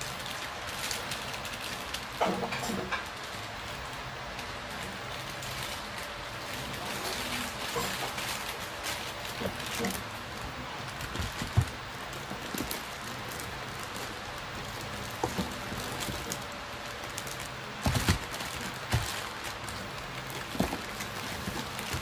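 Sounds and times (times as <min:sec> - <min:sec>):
plastic packaging rustling: 0:00.0 - 0:22.0.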